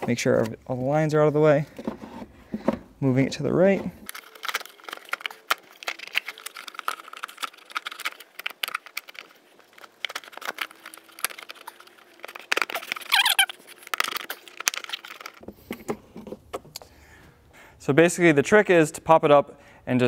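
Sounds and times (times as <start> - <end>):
hard plastic scraping and rattling: 1.6 - 16.8
short squeak: 12.8 - 13.6.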